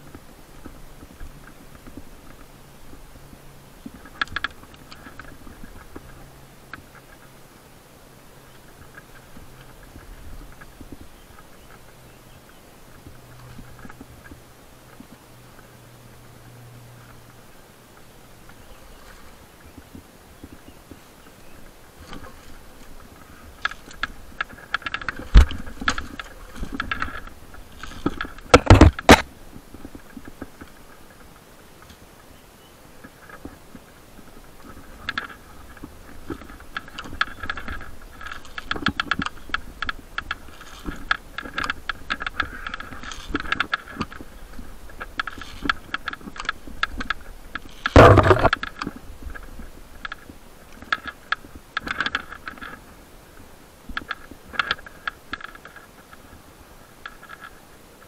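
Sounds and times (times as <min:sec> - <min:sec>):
metal climbing gear clinking: 0:34.6 - 0:50.2.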